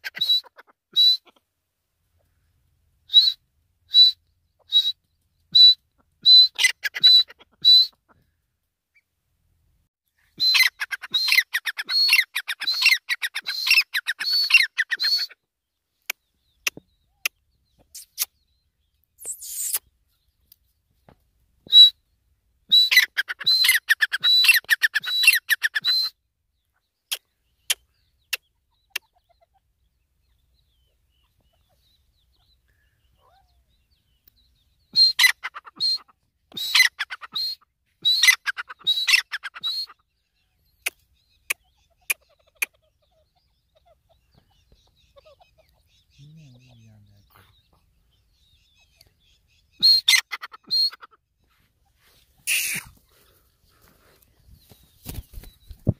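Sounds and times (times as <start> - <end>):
francolin whistled calls: 0.2 - 1.3, 3.1 - 8.0, 19.2 - 19.8, 21.7 - 22.0, 22.7 - 26.2, 34.8 - 40.0, 48.3 - 51.0, 52.4 - 52.9.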